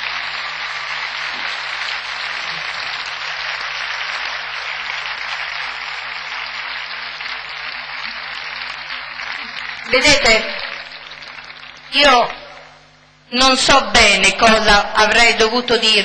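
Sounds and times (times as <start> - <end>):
large crowd applauding: 0.0 - 12.8.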